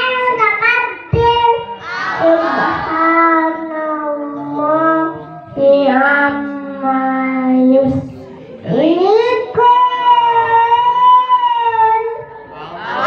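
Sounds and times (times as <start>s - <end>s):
child chanting into microphone: 0.0s - 13.0s.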